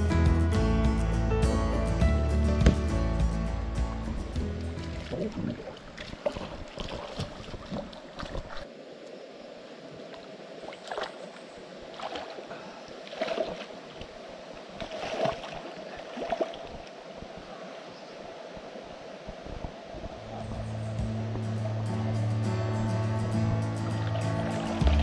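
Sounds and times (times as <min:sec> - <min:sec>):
water splashing and sloshing: 0:03.9 - 0:08.8, 0:09.8 - 0:17.5, 0:23.8 - 0:25.0
person wading into water: 0:04.5 - 0:08.7, 0:10.7 - 0:14.1, 0:14.7 - 0:16.8.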